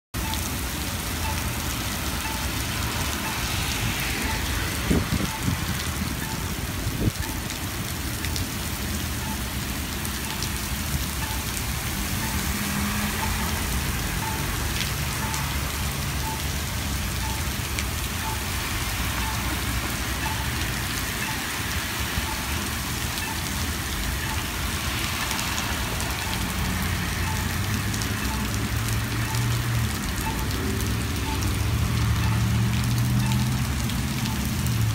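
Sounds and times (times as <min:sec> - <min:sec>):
heavy rain on pavement: 0:00.1 - 0:34.9
cars swishing on wet road: 0:00.2 - 0:34.9
short beeps: 0:01.2 - 0:01.5, 0:09.2 - 0:09.5, 0:11.2 - 0:11.6, 0:14.2 - 0:14.6, 0:16.2 - 0:16.6, 0:17.2 - 0:17.6, 0:18.2 - 0:19.6, 0:20.2 - 0:21.6, 0:22.2 - 0:22.6, 0:23.2 - 0:23.5, 0:27.2 - 0:27.5, 0:30.2 - 0:30.6.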